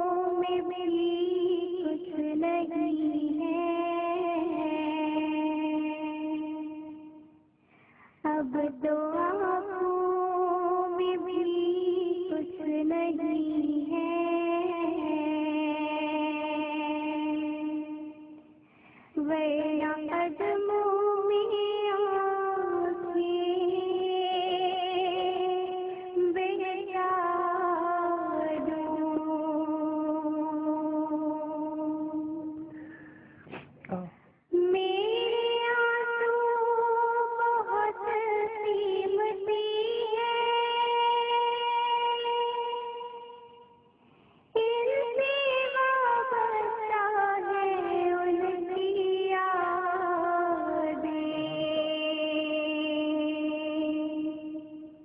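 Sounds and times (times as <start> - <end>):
girl singing devotional song: 0.0 - 33.1, 33.9 - 55.0
high voice singing: 47.8 - 54.8.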